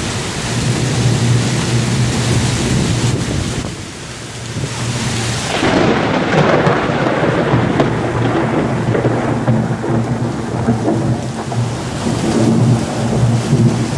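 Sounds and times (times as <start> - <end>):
gusting wind: 0.0 - 13.9
torrential rain: 0.0 - 13.9.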